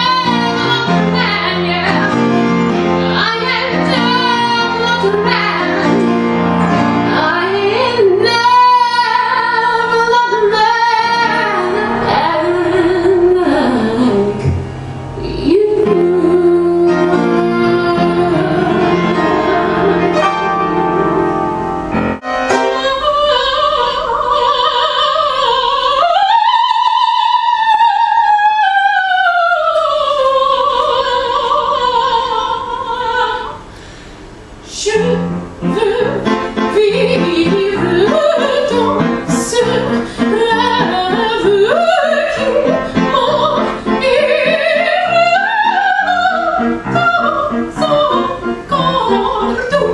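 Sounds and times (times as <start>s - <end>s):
woman singing operatic soprano: 0.0s - 2.3s, 3.0s - 6.0s, 7.1s - 14.4s, 15.2s - 20.2s, 22.5s - 33.7s, 34.7s - 49.9s
piano accompaniment: 0.0s - 33.8s, 34.4s - 49.9s.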